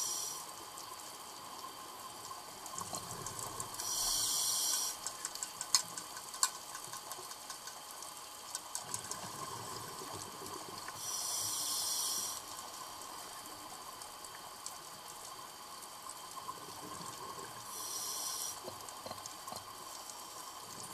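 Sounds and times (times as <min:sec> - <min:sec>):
steady underwater hiss: 0:00.0 - 0:20.9
faint clicks: 0:02.6 - 0:09.3.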